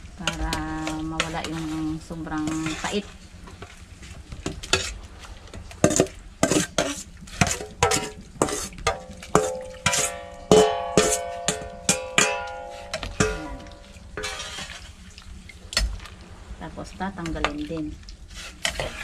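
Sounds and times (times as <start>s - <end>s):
metal spoon scraping steel bowl: 0.3s - 3.1s, 5.8s - 14.9s, 18.3s - 19.0s
bowl ringing: 9.4s - 14.2s.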